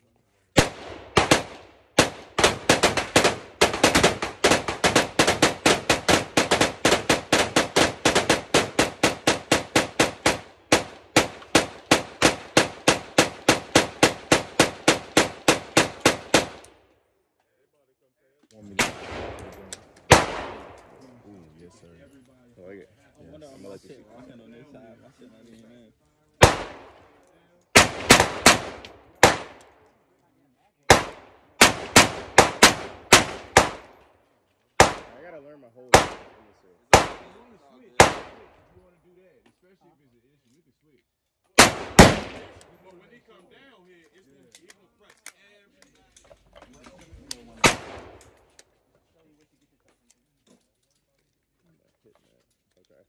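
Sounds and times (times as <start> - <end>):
rapid semi-automatic gunfire: 0.6 - 16.7, 20.1 - 20.8, 26.4 - 29.8, 30.9 - 34.0, 34.8 - 35.2, 35.9 - 38.6, 41.6 - 42.7, 47.5 - 48.6
gunshots: 0.6 - 16.8, 18.7 - 21.0, 26.4 - 29.8, 30.9 - 34.1, 34.8 - 35.3, 35.9 - 38.7, 41.6 - 42.8, 47.4 - 48.6.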